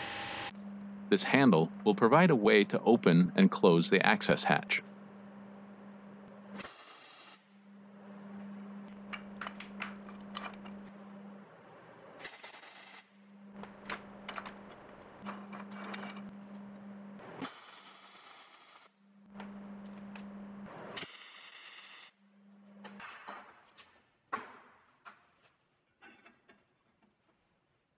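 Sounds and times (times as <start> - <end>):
steady low hum: 0.0 - 6.6, 7.4 - 12.2, 13.1 - 17.4, 18.9 - 20.8
welding arc hissing and crackling: 6.6 - 7.4, 12.2 - 13.1, 17.4 - 18.9, 21.0 - 22.1.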